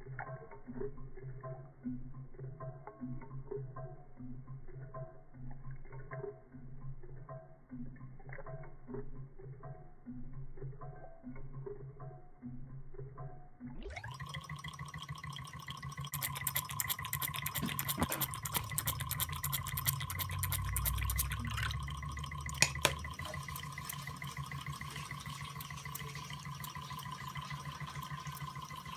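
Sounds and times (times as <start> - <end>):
small engine whirring and ticking: 0.0 - 28.9
water splashing into bowl: 13.9 - 28.9.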